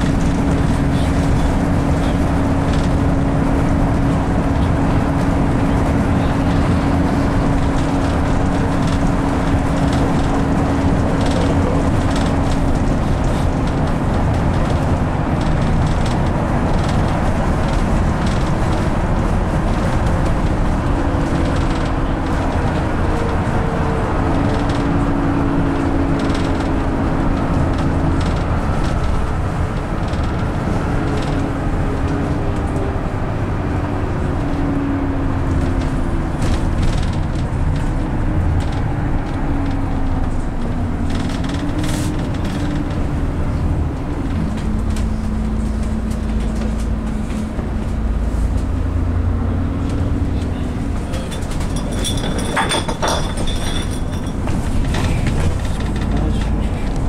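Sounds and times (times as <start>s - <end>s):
bus engine drone: 0.0s - 57.0s
road rumble: 0.0s - 57.0s
light rattles: 49.8s - 57.0s.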